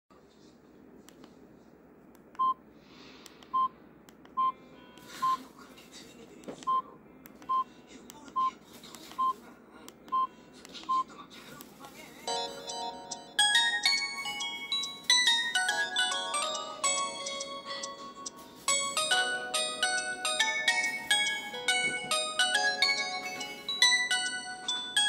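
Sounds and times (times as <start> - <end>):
phone keypad beeps: 3.5 - 3.7
polyphonic phone ringtone: 12.3 - 25.0.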